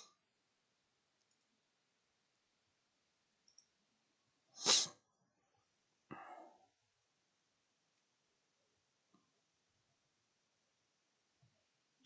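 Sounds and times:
short breathy noise: 0:04.6 - 0:04.9.

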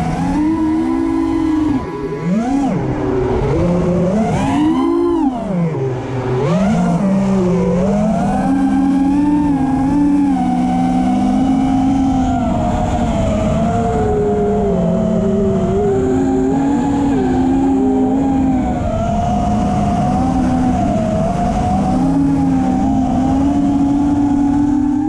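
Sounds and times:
drone motors whining: 0:00.0 - 0:25.0.

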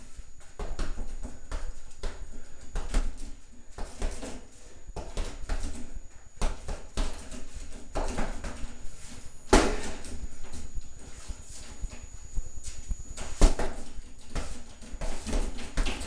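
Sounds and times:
punches thudding on heavy bag: 0:09.5 - 0:10.0.

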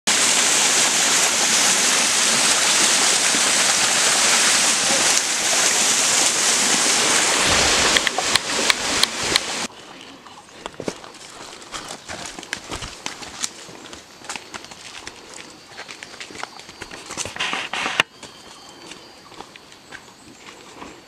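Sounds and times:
waterfall rushing: 0:00.1 - 0:09.7.

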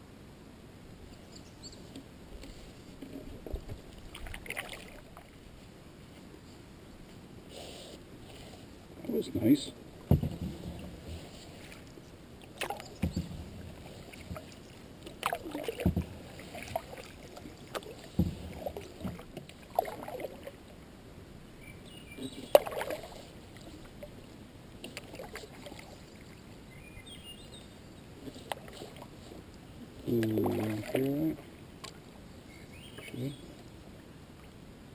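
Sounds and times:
paddle splashes: 0:01.8 - 0:06.1, 0:07.5 - 0:20.8, 0:22.1 - 0:27.0, 0:27.7 - 0:32.2
sharp knocks on canoe: 0:10.0 - 0:11.3, 0:12.6 - 0:13.6, 0:15.2 - 0:16.2, 0:17.7 - 0:19.3.

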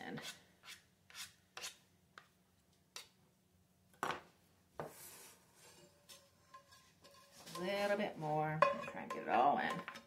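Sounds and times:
spoon scraping a pot: 0:05.0 - 0:10.0.

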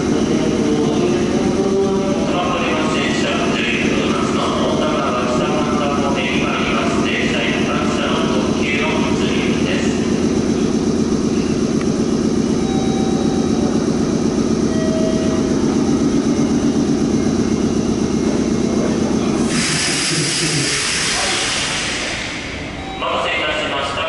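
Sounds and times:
electric train mechanical drone: 0:00.0 - 0:24.0
loud hiss: 0:19.4 - 0:22.6.

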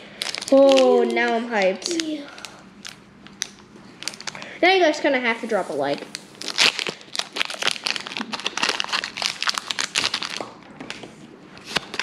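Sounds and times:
foil wrapper crinkling: 0:00.1 - 0:04.5, 0:06.0 - 0:10.6, 0:11.6 - 0:12.0.

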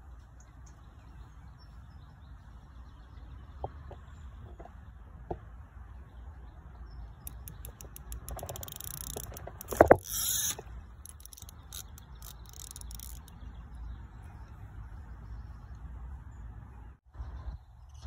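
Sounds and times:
fishing reel drag clicking: 0:07.2 - 0:13.4
line running off reel: 0:07.2 - 0:13.4.

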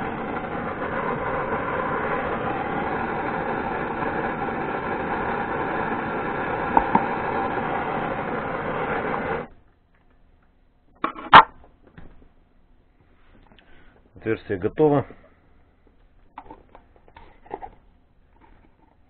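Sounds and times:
gas torch hissing: 0:00.0 - 0:09.6.

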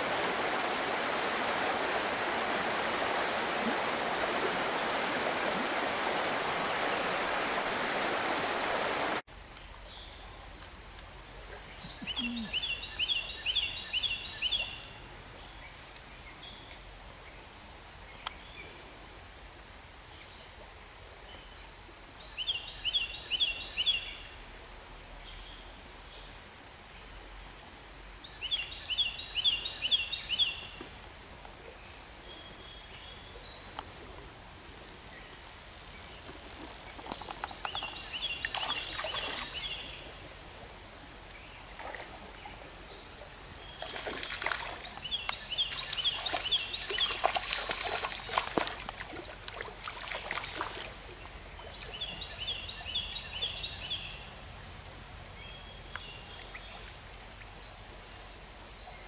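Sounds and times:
water splashing: 0:00.0 - 0:09.2, 0:36.1 - 0:40.2, 0:41.6 - 0:42.7, 0:43.5 - 0:52.0
stream running: 0:00.0 - 0:59.0
songbird chirping: 0:09.4 - 0:18.8, 0:28.2 - 0:59.0.

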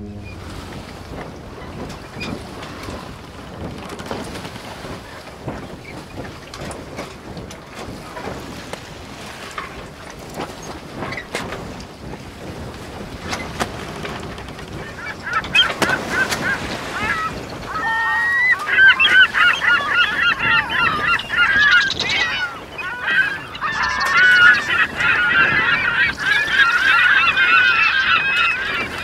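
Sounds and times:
birds honking: 0:14.2 - 0:29.0.

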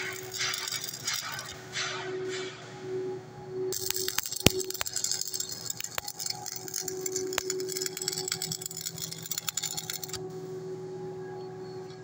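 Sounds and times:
welding arc crackling: 0:00.0 - 0:01.6, 0:03.8 - 0:10.2.

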